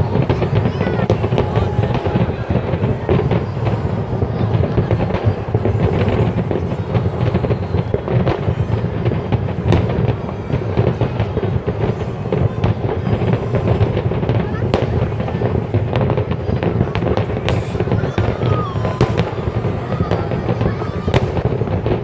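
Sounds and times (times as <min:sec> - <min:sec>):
firework crackles: 0:00.0 - 0:22.0
firework shells bursting: 0:12.3 - 0:22.0.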